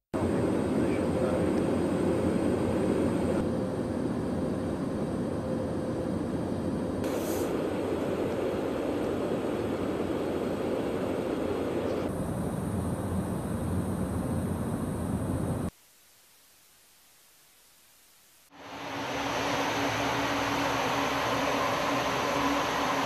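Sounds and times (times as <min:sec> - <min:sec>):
jet engines and airflow roar: 0:00.2 - 0:15.7, 0:18.5 - 0:23.0
faint steady hum: 0:00.2 - 0:23.0
brief hiss: 0:07.0 - 0:07.6.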